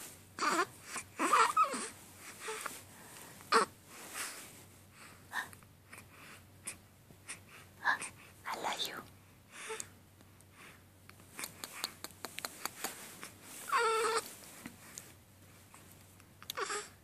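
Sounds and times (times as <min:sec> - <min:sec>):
soft wordless voice sounds: 0:07.8 - 0:09.2.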